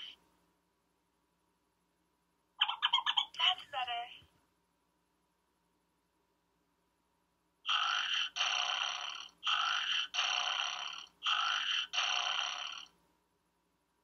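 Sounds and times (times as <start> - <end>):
toy speaker snoring sound: 7.7 - 13.0.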